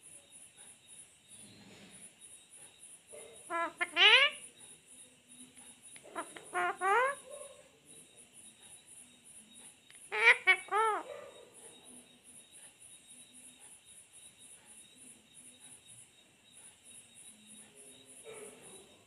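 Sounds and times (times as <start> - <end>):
parakeet calls: 3.2 - 4.6, 5.8 - 7.7, 9.9 - 11.3.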